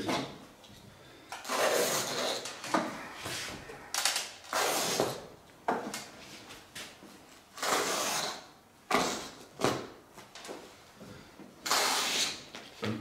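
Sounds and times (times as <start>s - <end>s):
cloth tearing: 1.4s - 2.5s, 4.4s - 5.2s, 7.6s - 9.4s, 11.6s - 12.5s.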